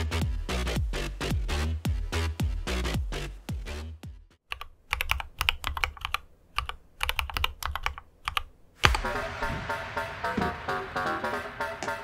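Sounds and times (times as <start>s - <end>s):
mechanical keyboard typing: 4.5s - 8.5s
electronic music: 8.8s - 12.0s
loud falling swoosh: 8.8s - 12.0s.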